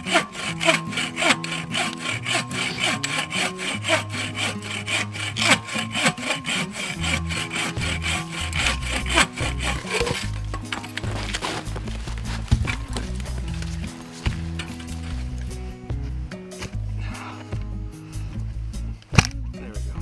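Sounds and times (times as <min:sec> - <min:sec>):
hand saw cutting wood: 0:00.0 - 0:15.6.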